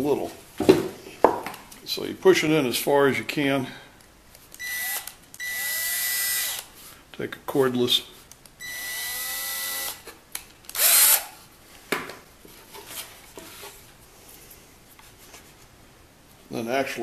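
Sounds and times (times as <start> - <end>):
cordless drill spinning: 4.6 - 6.7, 8.6 - 10.1, 10.7 - 11.4.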